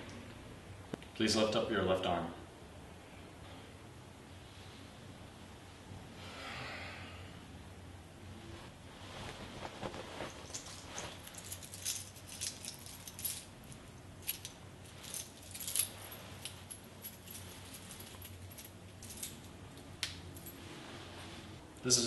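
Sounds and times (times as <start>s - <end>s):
wristwatch metallic jingling: 10.3s - 19.6s.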